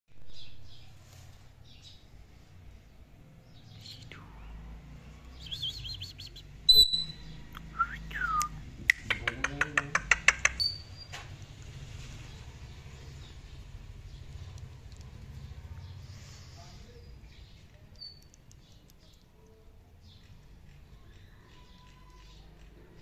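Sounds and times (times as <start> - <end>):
parakeet chirps and whistles: 5.4 - 8.6.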